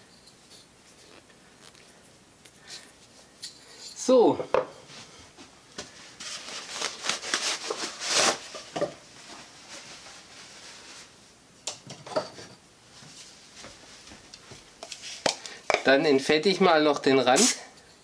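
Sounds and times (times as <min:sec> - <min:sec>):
rustling and light knocks: 0:11.9 - 0:15.8.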